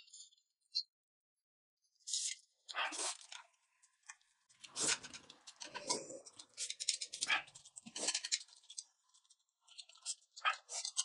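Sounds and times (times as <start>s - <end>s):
noodles being slurped: 2.8s - 3.4s, 4.6s - 9.2s.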